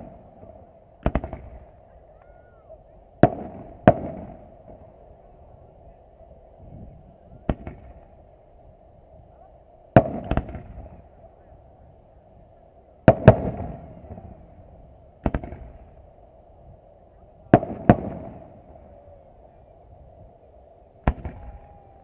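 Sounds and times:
firework shells bangs: 0.0s - 1.7s, 3.2s - 5.0s, 7.4s - 8.1s, 9.9s - 11.0s, 13.0s - 14.4s, 15.2s - 16.0s, 17.5s - 19.3s, 21.0s - 22.0s.

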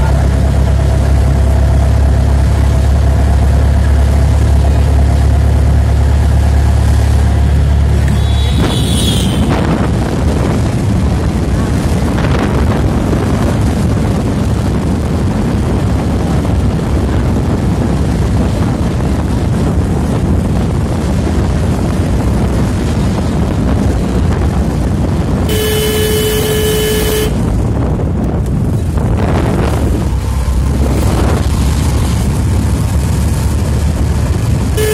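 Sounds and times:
moving vehicle rumble: 0.0s - 34.9s
wind buffeting microphone: 0.0s - 34.9s
vehicle horn: 8.0s - 9.7s, 25.5s - 27.4s.

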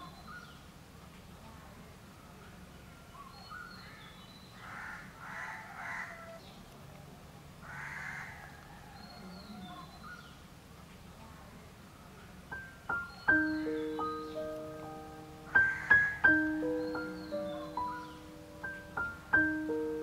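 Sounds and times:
small birds chirping: 0.0s - 20.0s
crow cawing: 4.6s - 6.4s, 7.6s - 8.5s, 15.5s - 16.2s.

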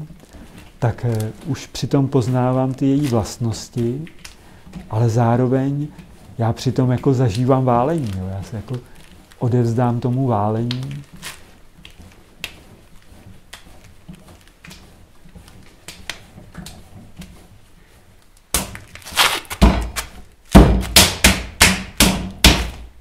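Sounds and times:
hands pressing and rubbing clay: 0.0s - 23.0s
clay thudding on wooden bench: 19.5s - 22.9s.

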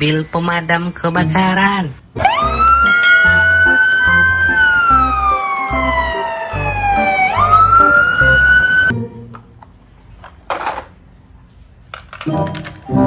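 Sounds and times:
fire engine siren wailing: 2.2s - 8.9s.

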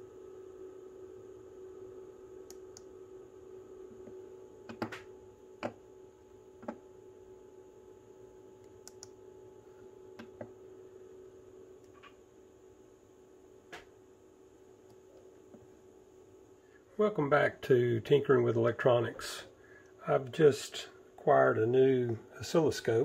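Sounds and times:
faint electrical hum: 0.0s - 23.0s
computer mouse clicking: 8.6s - 9.2s.

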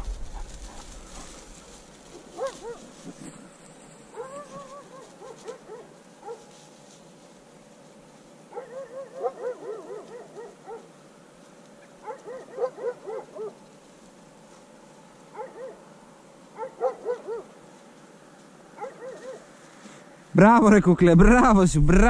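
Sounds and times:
dog whining yelps: 2.2s - 2.9s, 4.1s - 6.4s, 8.5s - 10.9s, 12.0s - 13.6s, 15.4s - 15.8s, 16.6s - 17.5s, 18.8s - 19.5s.

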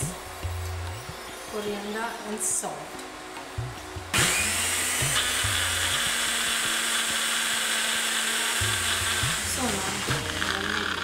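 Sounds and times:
blender grinding at high speed: 4.1s - 11.0s.

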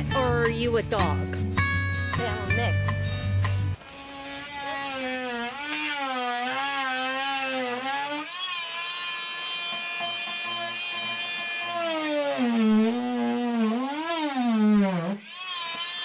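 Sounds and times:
rotary tool whining cutting drywall: 3.8s - 16.0s.

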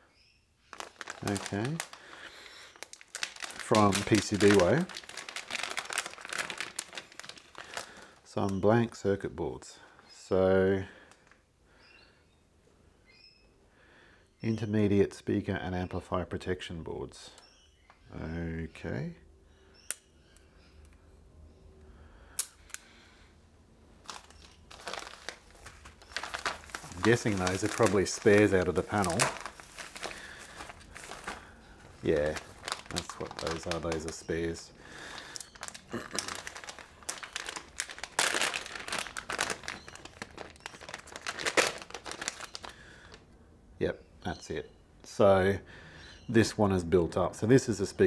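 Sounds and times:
bubble wrap rustling and crinkling: 0.6s - 8.8s, 23.9s - 43.2s.

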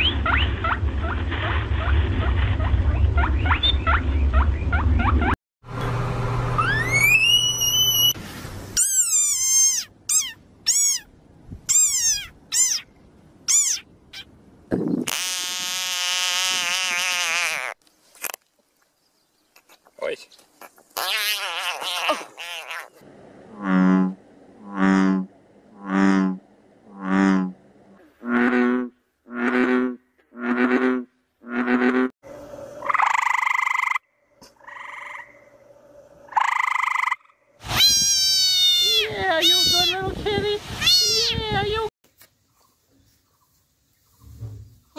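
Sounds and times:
frog squeaking: 6.6s - 8.2s, 8.8s - 11.1s, 11.7s - 12.9s, 13.5s - 14.3s, 20.6s - 23.0s, 32.8s - 34.0s, 34.6s - 35.4s, 36.3s - 39.9s
treefrog trilling: 8.8s - 11.1s, 11.7s - 12.9s, 13.5s - 14.3s, 32.8s - 34.0s, 34.6s - 35.5s, 36.3s - 39.9s
bullfrog long loud call: 32.8s - 35.6s, 36.3s - 37.3s.

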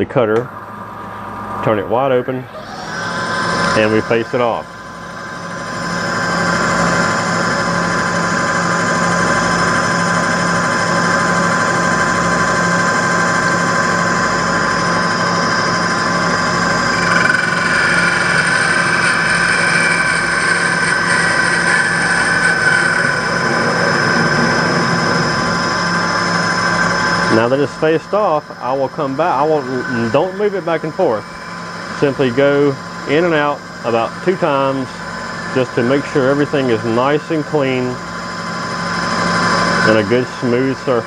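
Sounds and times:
lathe motor whine: 0.0s - 41.0s
cutting tool scraping: 16.8s - 27.6s.

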